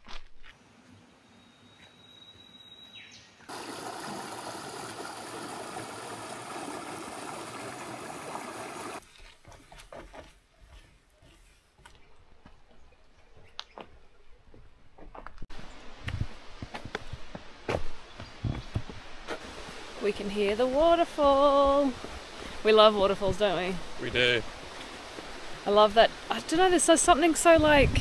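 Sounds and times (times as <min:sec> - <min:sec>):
running water rushing: 0:03.5 - 0:09.0, 0:19.0 - 0:28.0.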